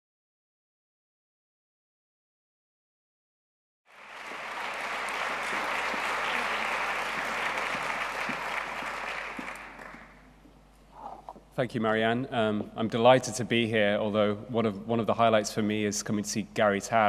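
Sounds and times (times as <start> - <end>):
large audience applauding: 3.9 - 10.3.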